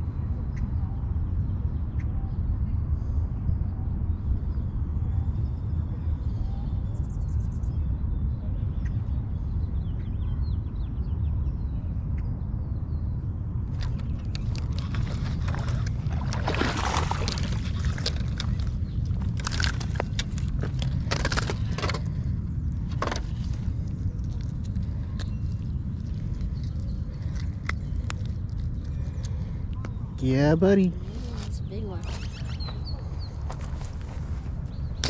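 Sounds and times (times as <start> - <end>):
wind rumble on microphone: 0.0 - 35.0
clicks scrapes and rustles: 13.8 - 29.4.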